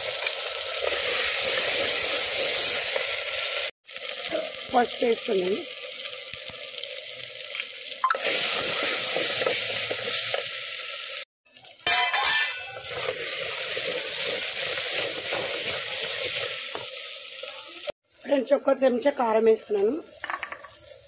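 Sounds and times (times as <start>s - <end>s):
vegetables sizzling in hot oil: 0.0s - 21.0s
spatula stirring in a pan: 8.3s - 10.5s, 11.9s - 17.8s.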